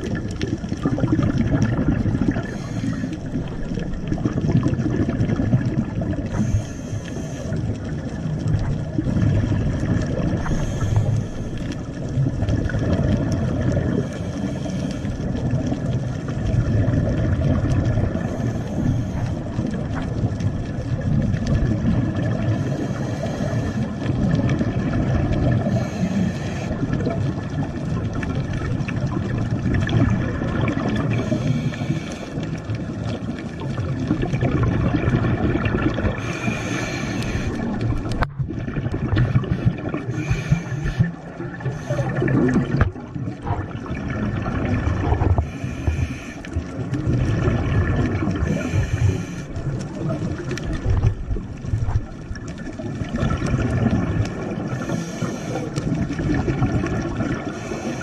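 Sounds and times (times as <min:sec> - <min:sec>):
exhaled bubbles gurgling: 0:00.0 - 0:58.0
low underwater rumble: 0:00.0 - 0:58.0.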